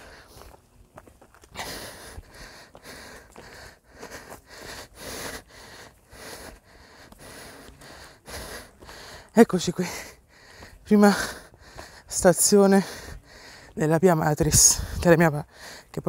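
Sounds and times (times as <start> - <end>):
footsteps on gravel: 0.0 - 4.8.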